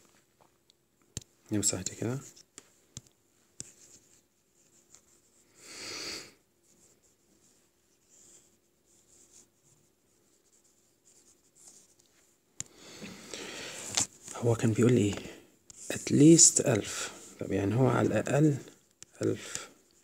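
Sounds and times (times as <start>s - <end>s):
stylus rubbing on tablet screen: 3.6s - 5.4s, 6.6s - 12.4s, 13.8s - 16.6s.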